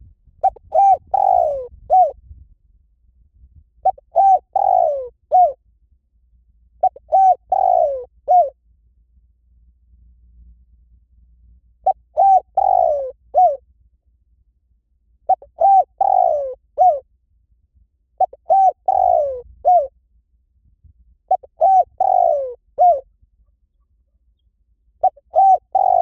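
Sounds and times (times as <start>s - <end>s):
dove cooing: 0.4s - 2.2s, 3.8s - 5.6s, 6.8s - 8.6s, 11.8s - 13.6s, 15.3s - 17.0s, 18.2s - 19.9s, 21.3s - 23.1s, 25.0s - 26.0s.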